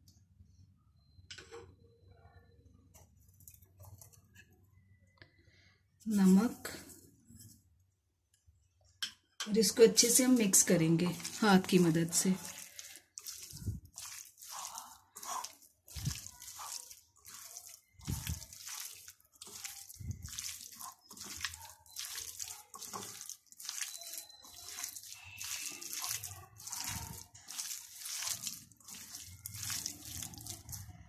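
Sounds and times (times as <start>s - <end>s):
wet squelches of mixing chicken: 9.6s - 31.0s.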